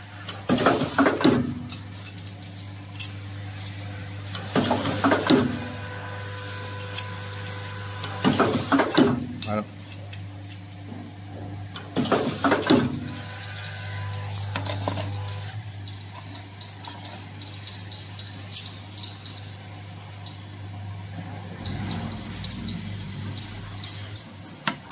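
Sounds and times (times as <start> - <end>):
machine electrical hum: 0.0 - 24.9
metallic clinks and clicks: 0.2 - 5.6, 6.3 - 8.2, 9.2 - 10.8, 13.1 - 20.7, 21.5 - 24.5.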